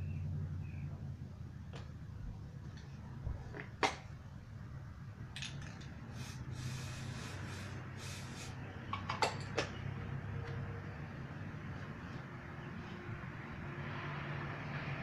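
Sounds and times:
aerosol spray can hissing: 6.1 - 8.6.

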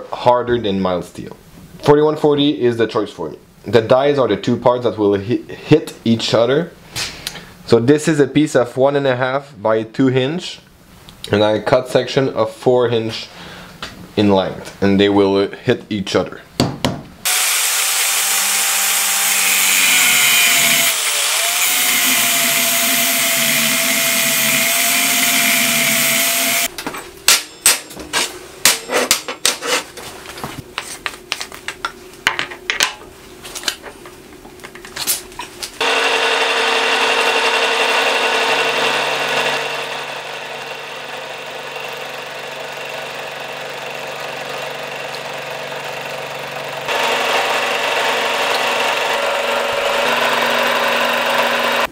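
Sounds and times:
power saw cutting steel: 17.2 - 26.7, 35.8 - 51.9
milling machine running: 17.3 - 26.7, 35.8 - 51.9.

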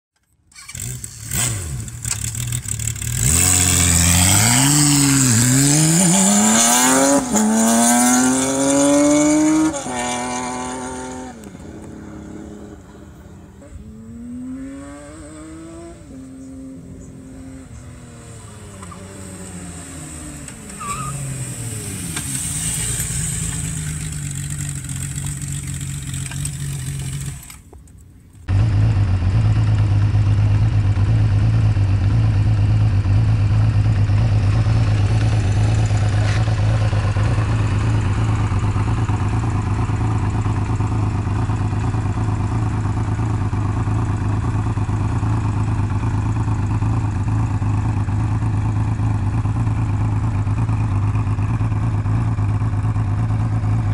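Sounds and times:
motorcycle engine revving through gears: 0.2 - 27.8, 28.4 - 53.9.

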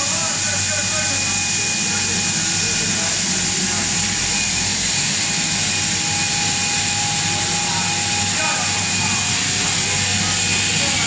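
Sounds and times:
machine drone: 0.0 - 11.0
thin constant whining tones: 0.0 - 11.0.

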